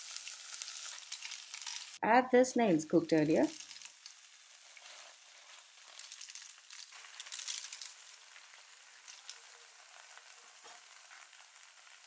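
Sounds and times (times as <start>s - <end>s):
oil sizzling: 0.0s - 12.0s
shells clattering in a pot: 0.9s - 2.0s, 3.5s - 4.2s, 5.8s - 8.0s.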